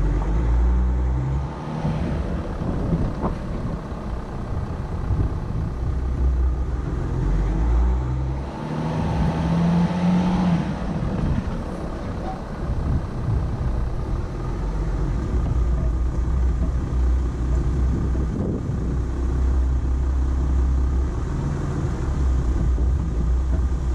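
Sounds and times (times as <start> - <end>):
pickup truck engine rumbling: 0.0 - 23.9.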